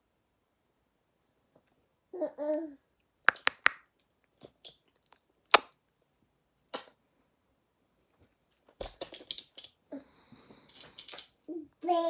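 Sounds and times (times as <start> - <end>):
plastic toys knocking and clicking: 3.3 - 3.8, 8.7 - 9.8, 10.6 - 11.4.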